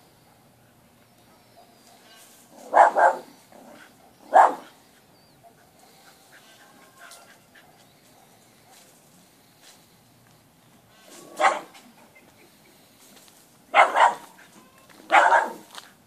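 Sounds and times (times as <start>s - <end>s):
dog barking: 2.6s - 4.8s, 11.3s - 11.8s, 13.7s - 14.4s, 15.1s - 15.7s.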